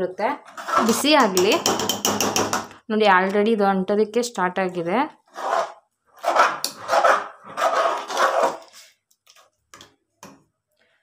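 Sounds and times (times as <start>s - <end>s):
ladle scraping through batter: 5.4s - 9.4s.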